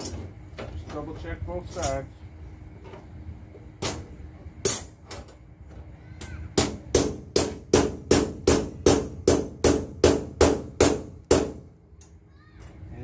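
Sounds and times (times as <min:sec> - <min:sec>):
hammer striking metal: 0:06.6 - 0:11.6.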